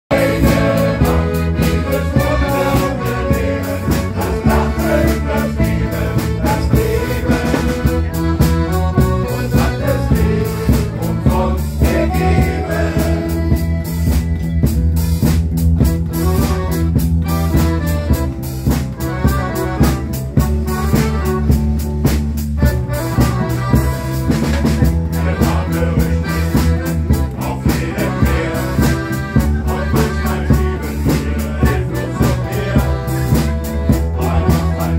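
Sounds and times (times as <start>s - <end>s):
men's choir singing: 0.1s - 14.0s, 24.7s - 34.9s
live band playing upbeat song: 0.1s - 34.9s.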